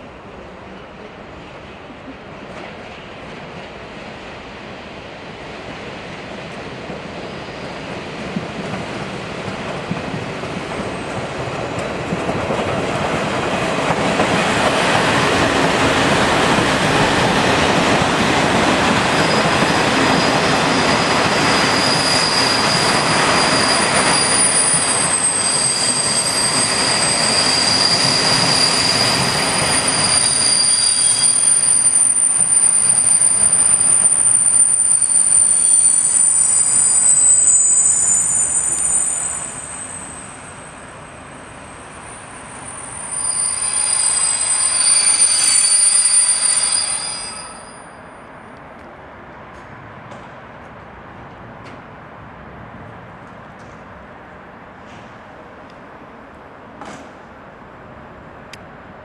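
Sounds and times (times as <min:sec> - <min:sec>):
train coaches rolling and braking: 0:00.1 - 0:59.0
high squeal of train wheels: 0:06.3 - 0:48.5.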